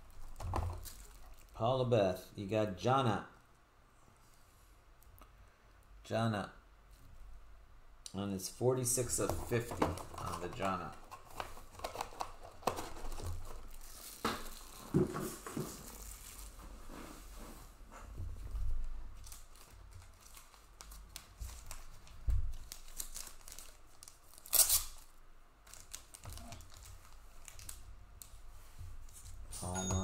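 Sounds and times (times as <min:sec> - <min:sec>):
packaging crinkling and tearing: 0:00.0 - 0:01.6, 0:09.9 - 0:16.6, 0:19.2 - 0:28.4.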